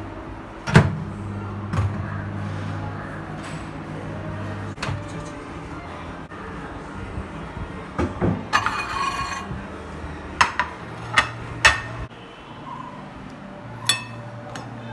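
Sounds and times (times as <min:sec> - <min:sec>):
microwave low hum: 0:00.0 - 0:07.8
plate scraping on turntable: 0:08.6 - 0:09.6
plate clinking on countertop: 0:13.9 - 0:14.3.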